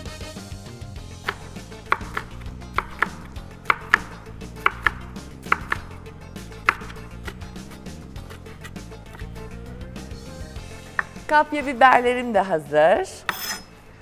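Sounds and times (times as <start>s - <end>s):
knife chopping on wooden board: 1.2s - 6.0s, 6.6s - 9.3s, 10.9s - 11.3s, 13.3s - 13.7s.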